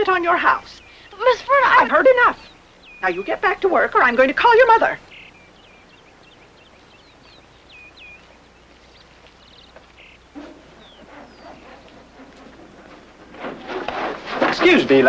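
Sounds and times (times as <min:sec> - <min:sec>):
faint bird chirps: 0:00.0 - 0:12.8.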